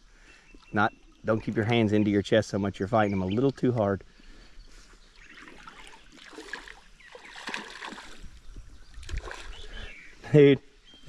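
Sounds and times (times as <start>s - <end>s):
river water splashing and trickling: 5.0s - 10.1s.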